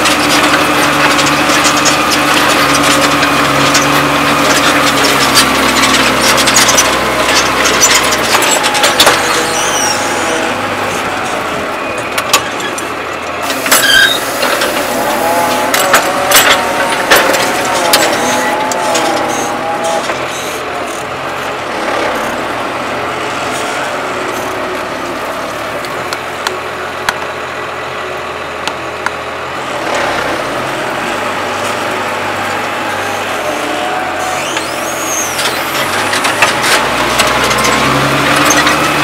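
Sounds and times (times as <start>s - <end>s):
rushing noise: 0.0s - 25.9s
plough clattering and clanking: 0.0s - 27.3s, 28.6s - 39.0s
tractor diesel engine under load: 0.0s - 39.0s.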